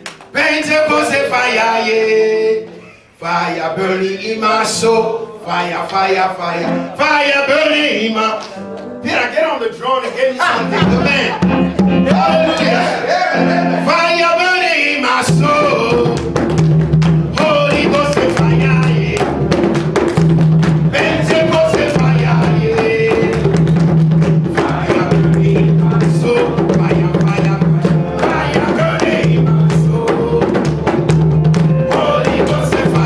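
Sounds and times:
people singing: 0.3 - 8.6, 10.4 - 16.5, 17.2 - 20.2, 20.8 - 33.0
bass line: 10.4 - 14.0
drum kit beat: 10.4 - 14.0, 15.2 - 33.0.

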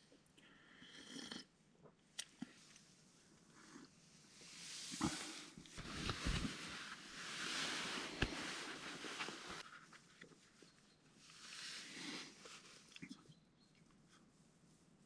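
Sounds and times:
faint rustling: 4.3 - 15.0.

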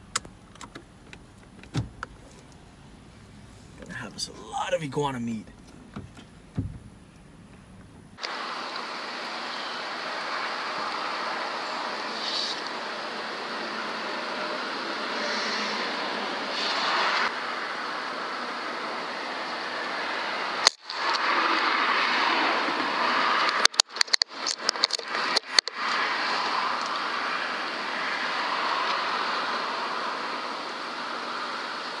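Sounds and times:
sharp crack: 20.6 - 21.7, 22.8 - 26.0
sharp clicks and knocks: 23.5 - 25.9.

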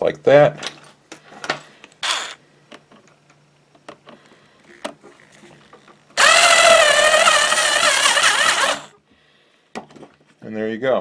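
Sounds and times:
cordless drill motor whining: 2.0 - 2.4, 6.2 - 9.0.

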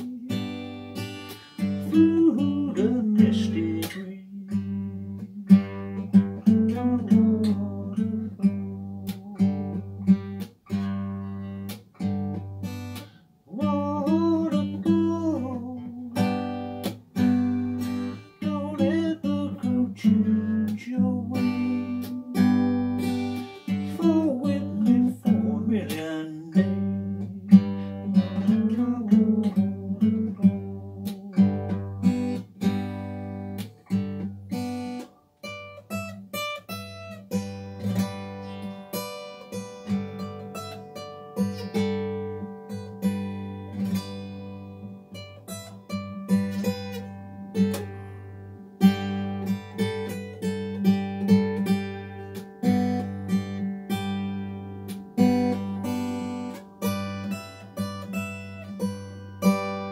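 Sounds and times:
man singing: 0.0 - 0.8, 1.6 - 5.7, 6.4 - 9.7, 13.5 - 16.5, 18.3 - 32.2
acoustic guitar strummed: 0.0 - 59.9.

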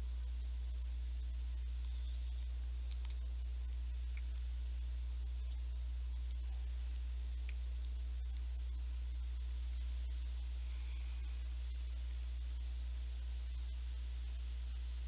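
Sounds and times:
low electrical hum: 0.0 - 15.0
faint clicks: 1.8 - 11.8.

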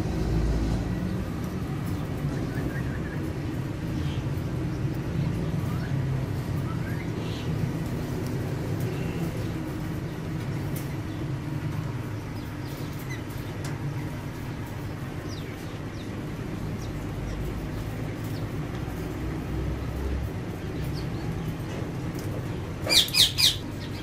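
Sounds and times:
parakeets chirping: 12.4 - 13.5, 22.8 - 24.0.

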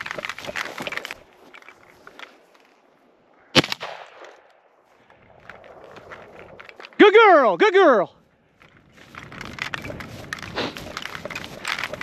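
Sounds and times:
footsteps crunching through dry grass: 0.0 - 3.0, 4.8 - 7.0, 8.2 - 12.0
grass rustling: 0.0 - 3.2, 8.2 - 12.0.

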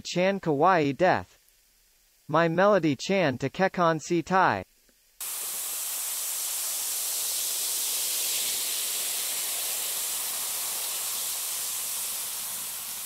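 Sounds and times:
bath bomb fizzing in water: 5.2 - 13.0
water pouring: 5.2 - 13.0.

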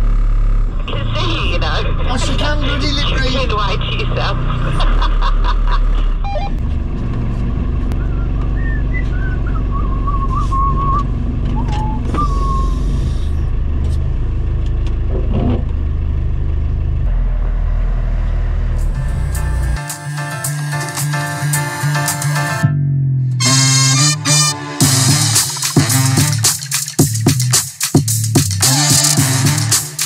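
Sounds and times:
engine running from inside cab: 0.0 - 21.1.

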